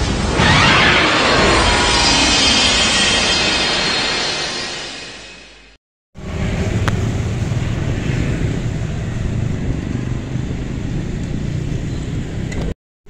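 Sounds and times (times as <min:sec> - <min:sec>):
road traffic rumble: 0:06.2 - 0:12.8.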